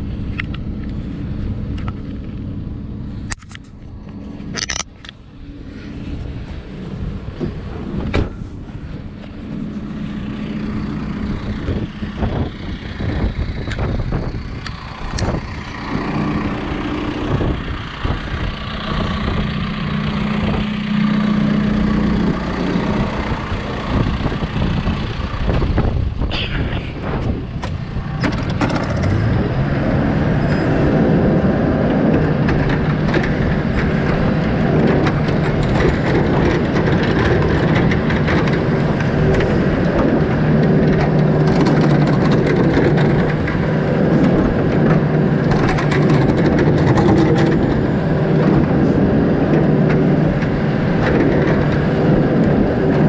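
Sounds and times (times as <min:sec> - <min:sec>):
diesel engine idling: 0:00.0 - 0:53.0.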